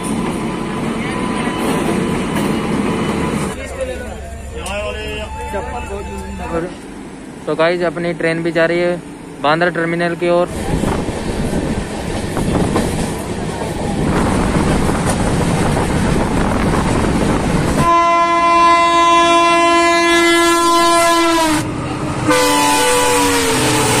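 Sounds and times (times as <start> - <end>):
train wheel and rail noise: 0.0 - 24.0
train horn: 4.7 - 6.8, 17.8 - 24.0.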